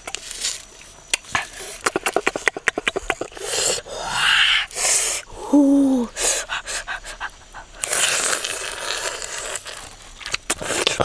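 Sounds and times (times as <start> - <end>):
loud breathing: 3.4 - 8.4
person humming: 5.3 - 6.2
chewing and mouth noises: 6.5 - 11.0.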